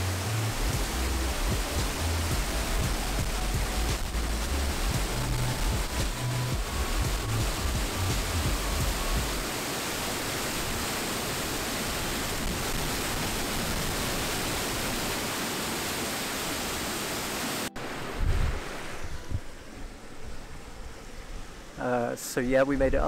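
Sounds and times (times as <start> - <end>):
low rumble: 0.0 - 9.4
waterfall rushing: 0.0 - 20.7
wind thump on microphone: 4.9 - 9.4, 18.0 - 19.6.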